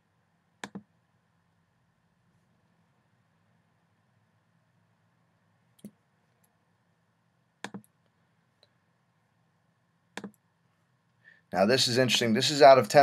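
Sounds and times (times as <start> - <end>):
computer mouse clicks: 0.6 - 0.9, 5.8 - 6.6, 7.6 - 8.1, 10.1 - 10.4.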